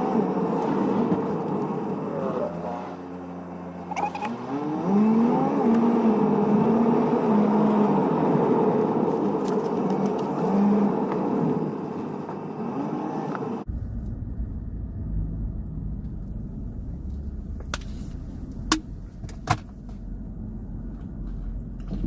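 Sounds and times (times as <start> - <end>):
low rumble inside car cabin: 13.3 - 22.0.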